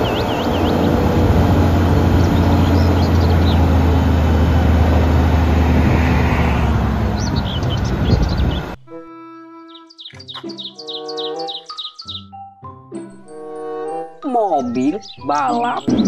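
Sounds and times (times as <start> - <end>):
birds chirping: 0.0 - 8.8, 9.6 - 12.5, 13.4 - 16.0
diesel lorry engine humming: 0.0 - 8.8.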